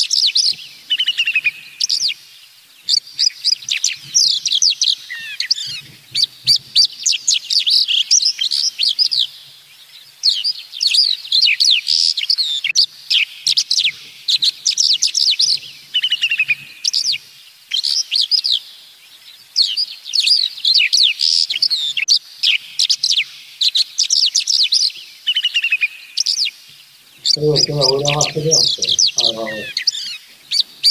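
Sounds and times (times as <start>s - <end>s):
songbird chirping and trilling: 0.0s - 30.9s.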